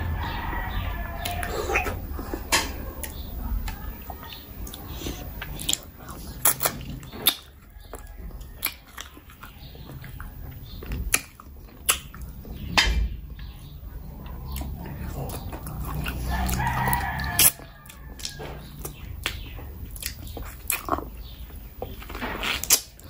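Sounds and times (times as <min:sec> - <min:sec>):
person chewing meat: 0:00.0 - 0:23.0
mouth clicks and smacks: 0:04.7 - 0:12.3, 0:18.2 - 0:23.0.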